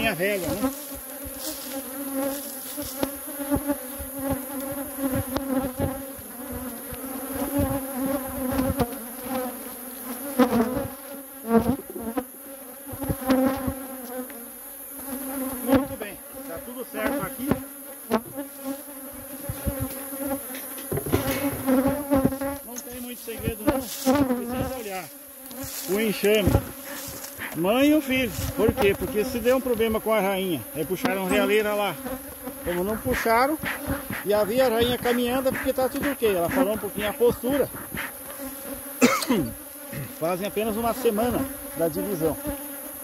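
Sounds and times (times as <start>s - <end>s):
honeybees buzzing: 0.0s - 43.0s
knocks on wooden hive box: 19.4s - 20.0s, 20.6s - 22.5s, 33.6s - 36.6s.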